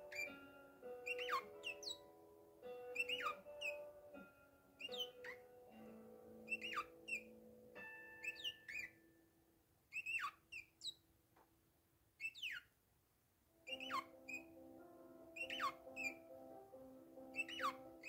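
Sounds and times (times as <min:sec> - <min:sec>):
parakeet chirping: 0:00.0 - 0:04.2, 0:04.8 - 0:05.5, 0:06.4 - 0:07.4, 0:08.1 - 0:09.0, 0:09.9 - 0:11.0, 0:12.2 - 0:12.8, 0:13.6 - 0:18.0
soft background music: 0:00.0 - 0:10.6, 0:13.5 - 0:18.0.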